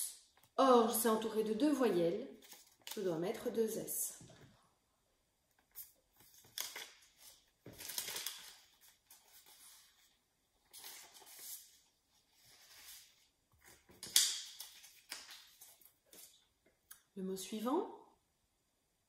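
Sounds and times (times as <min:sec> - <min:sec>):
paper rustling and scraping: 0:05.7 - 0:16.4.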